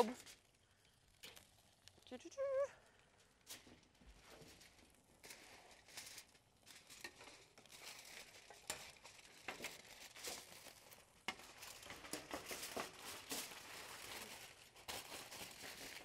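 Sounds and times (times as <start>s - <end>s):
aluminum foil crinkling: 0.0s - 16.0s.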